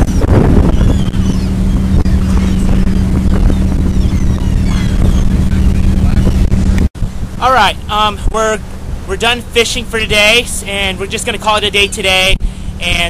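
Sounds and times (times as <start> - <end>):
boat engine droning: 0.0 - 13.0.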